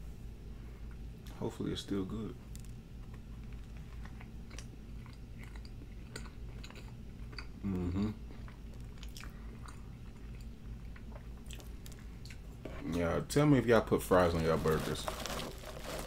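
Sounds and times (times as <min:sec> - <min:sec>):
close chewing with mouth clicks: 0:03.0 - 0:12.4.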